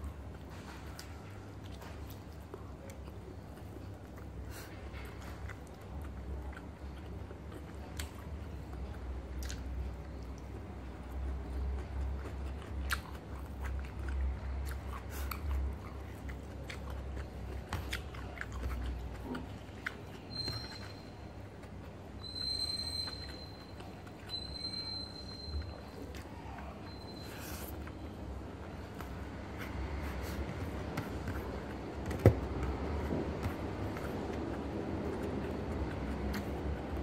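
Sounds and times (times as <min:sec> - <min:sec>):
person chewing and biting: 0:11.4 - 0:21.8, 0:28.9 - 0:37.0.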